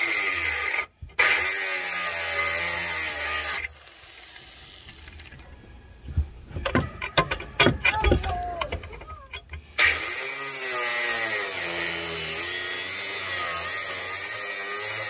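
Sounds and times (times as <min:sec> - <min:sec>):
reciprocating saw cutting metal: 0:00.0 - 0:05.2, 0:08.6 - 0:15.0
knocks and clatter: 0:06.5 - 0:09.6.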